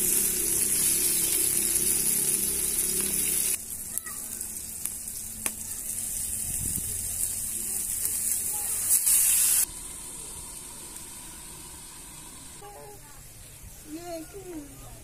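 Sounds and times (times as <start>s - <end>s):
vegetables sizzling in a wok: 0.0s - 14.6s.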